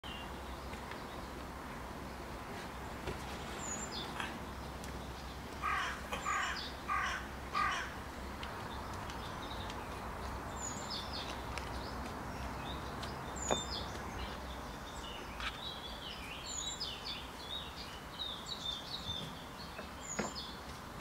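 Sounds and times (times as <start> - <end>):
small birds chirping: 0.0 - 21.0
bird calling: 5.6 - 8.0.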